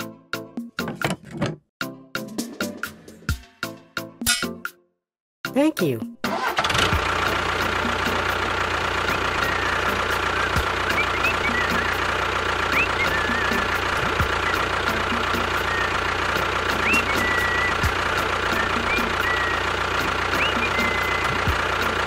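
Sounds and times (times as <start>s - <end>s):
tractor engine idling: 6.3s - 22.0s.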